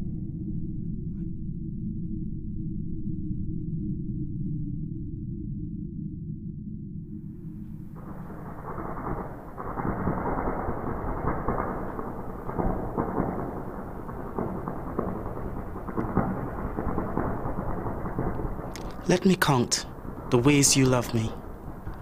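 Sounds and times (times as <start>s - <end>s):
constant crackling: 7.3s - 22.0s.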